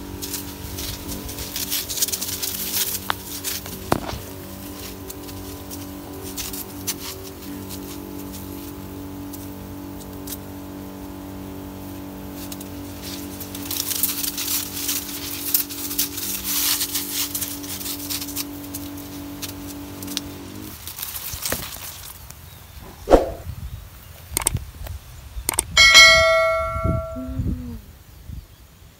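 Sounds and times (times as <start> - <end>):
sugarcane leaves rustling: 0.0 - 22.8.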